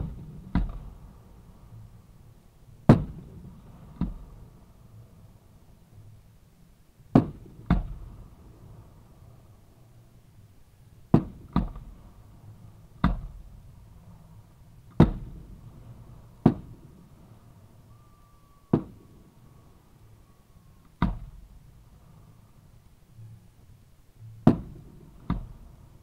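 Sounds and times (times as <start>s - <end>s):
fireworks bangs with echo: 2.8s - 4.3s, 18.7s - 19.1s.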